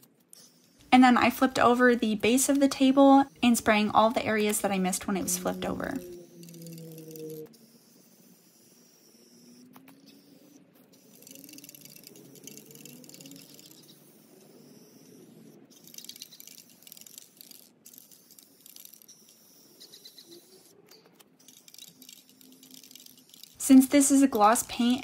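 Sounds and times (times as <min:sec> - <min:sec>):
aerosol spray paint hissing: 0:11.0 - 0:20.7.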